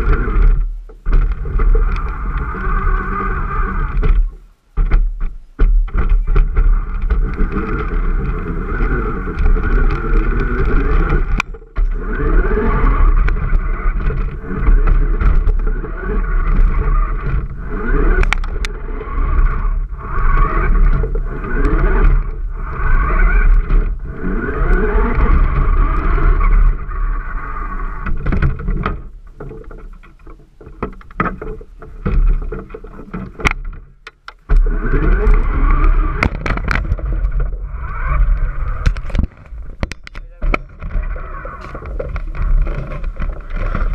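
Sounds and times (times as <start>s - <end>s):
toy car motor whining: 6.7s - 28.0s.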